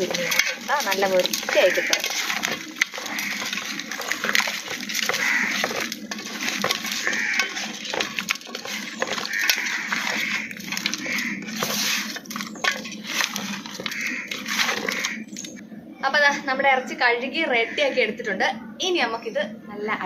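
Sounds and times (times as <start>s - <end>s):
meat and salt clinking on steel: 0.0s - 15.6s
wet squelching of kneaded meat: 0.0s - 15.6s.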